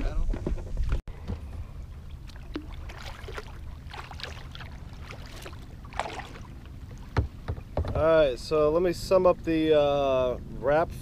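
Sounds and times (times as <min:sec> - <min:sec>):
paddle splashing in water: 0:01.3 - 0:08.0.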